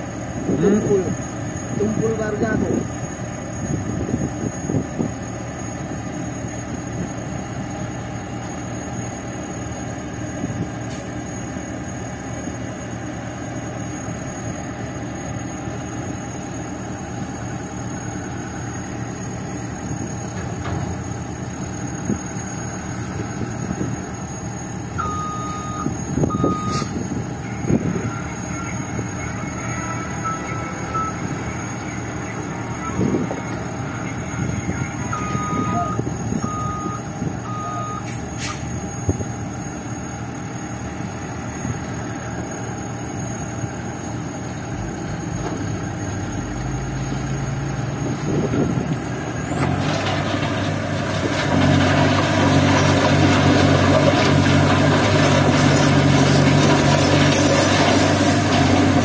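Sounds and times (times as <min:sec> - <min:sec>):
heavy diesel engines running: 0:00.0 - 0:59.0
electronic warning beeper: 0:25.0 - 0:38.1.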